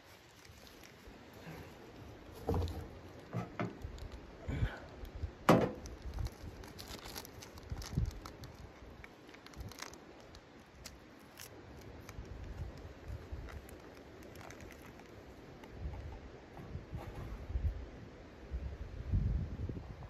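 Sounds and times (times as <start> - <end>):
wrapper rustling and clicks: 0.0 - 1.7, 5.7 - 15.7.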